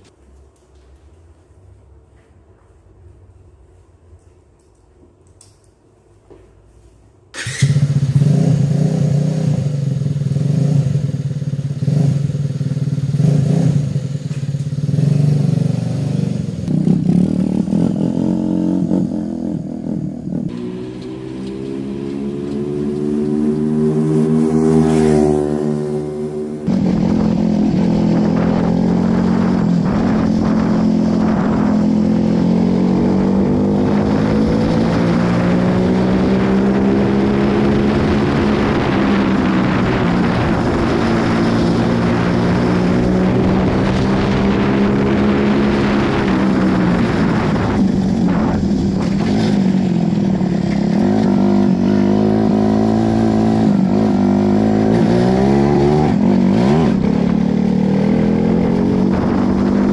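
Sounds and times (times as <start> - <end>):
go-kart engine running: 20.2 - 59.9.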